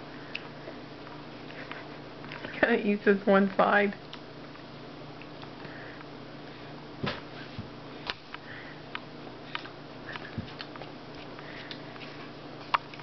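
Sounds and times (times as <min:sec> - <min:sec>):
low room hum: 0:00.0 - 0:13.0
toddler chewing food: 0:09.4 - 0:13.0.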